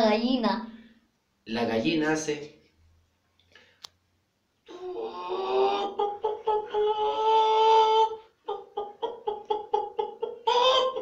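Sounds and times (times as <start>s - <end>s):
person imitating hen clucks: 4.7s - 11.0s.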